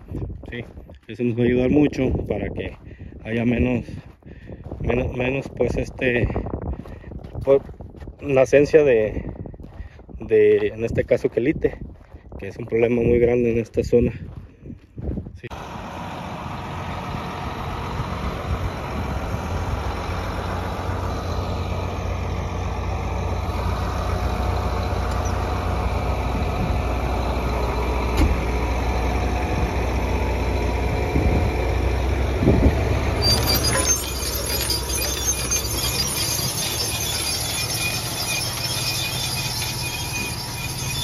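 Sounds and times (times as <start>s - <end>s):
tractor diesel engine running: 15.5s - 41.0s.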